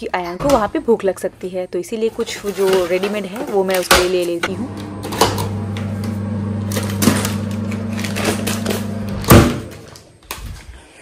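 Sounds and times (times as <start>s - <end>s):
microwave oven humming: 4.5s - 10.0s.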